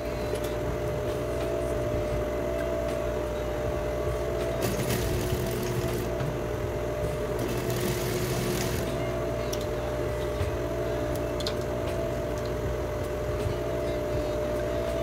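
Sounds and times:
sewing machine motor humming: 0:04.4 - 0:09.5
sewing machine high whirr: 0:04.5 - 0:06.2, 0:06.8 - 0:09.3.

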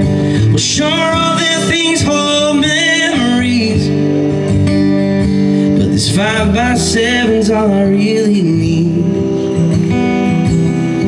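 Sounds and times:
man singing: 0:00.0 - 0:04.2, 0:05.6 - 0:09.8
strummed acoustic guitar: 0:00.0 - 0:11.0.

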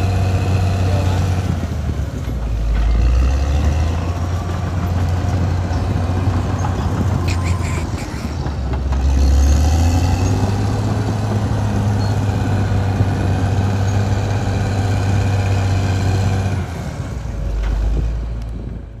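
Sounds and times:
bulldozer diesel engine humming: 0:00.0 - 0:19.0.

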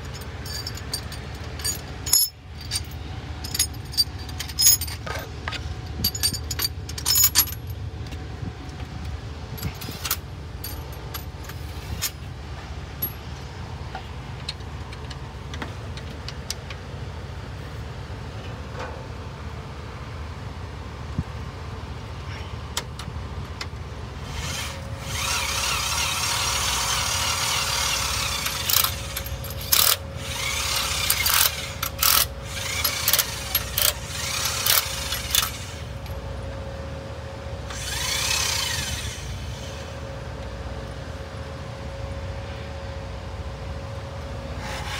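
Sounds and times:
steady low hum: 0:00.0 - 0:44.9
power drills running: 0:24.3 - 0:36.0, 0:37.7 - 0:40.0.

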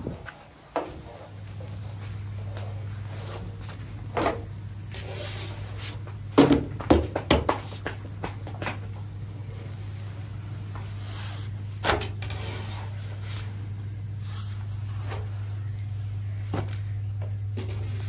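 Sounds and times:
wooden stick on griddle: 0:00.0 - 0:15.6
steady low hum: 0:00.0 - 0:18.0
dough slapping and knocking: 0:05.8 - 0:09.1.

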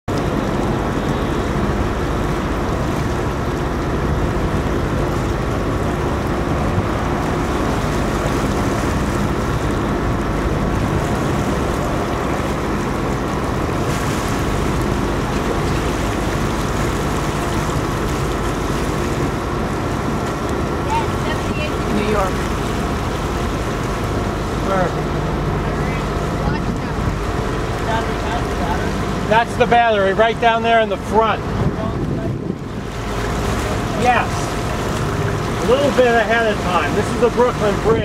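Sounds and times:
motorboat engine droning: 0:00.0 - 0:38.0
water rushing past hull: 0:00.1 - 0:38.0
wind on microphone: 0:31.3 - 0:35.7.

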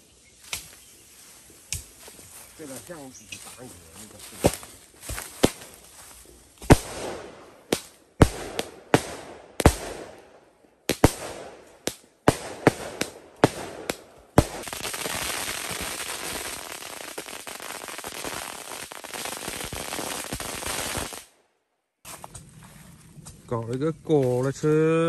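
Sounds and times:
firecrackers banging: 0:06.6 - 0:10.2, 0:10.9 - 0:21.3.

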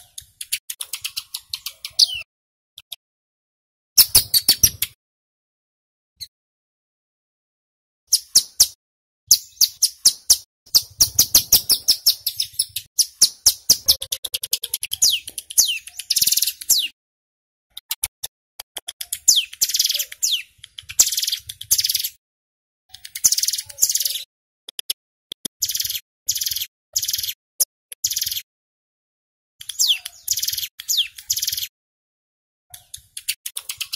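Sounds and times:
bird chipping notes: 0:00.0 - 0:02.3, 0:08.1 - 0:17.0, 0:18.8 - 0:22.2, 0:22.9 - 0:24.3, 0:25.6 - 0:28.5, 0:29.6 - 0:31.7, 0:32.7 - 0:33.9.

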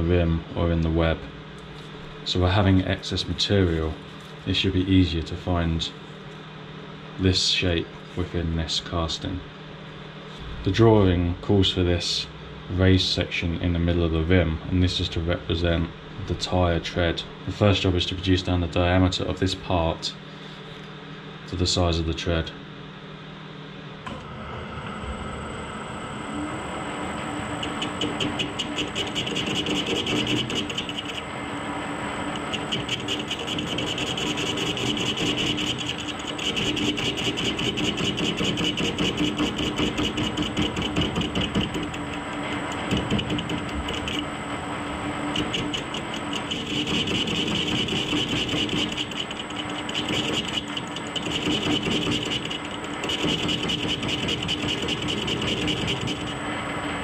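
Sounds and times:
lathe motor hum: 0:24.0 - 0:57.0
cutting tool scraping metal: 0:27.6 - 0:31.3, 0:32.3 - 0:44.3, 0:45.3 - 0:56.4.

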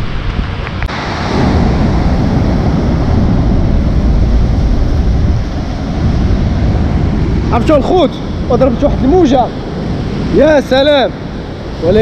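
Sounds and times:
sea wave breaking on rocks: 0:00.0 - 0:08.1
wind buffeting microphone: 0:00.0 - 0:12.0.

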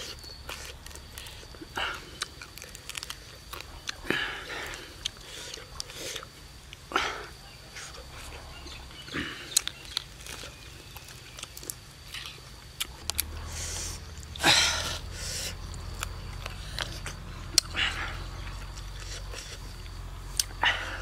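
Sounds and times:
man chewing and lip smacking: 0:00.0 - 0:04.0, 0:04.6 - 0:06.9, 0:09.5 - 0:14.4, 0:15.1 - 0:20.6.

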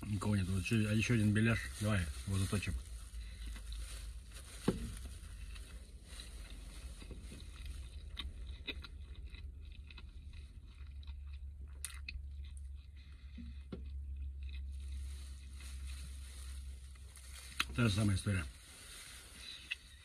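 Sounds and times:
man chewing food: 0:03.1 - 0:17.7.

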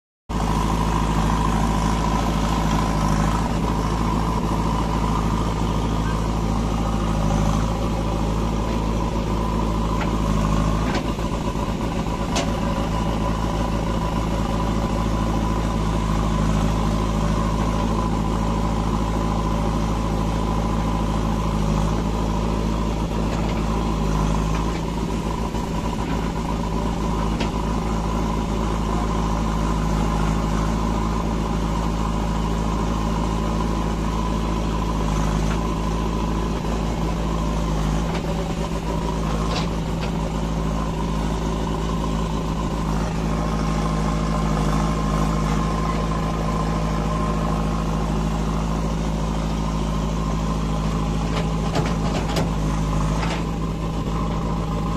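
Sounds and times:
diesel engine running: 0:00.3 - 0:54.9.

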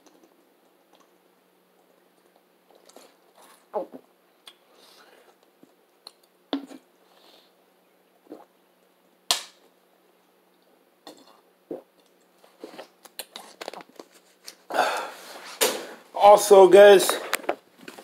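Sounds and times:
person gulping: 0:08.2 - 0:08.5, 0:11.0 - 0:12.1.

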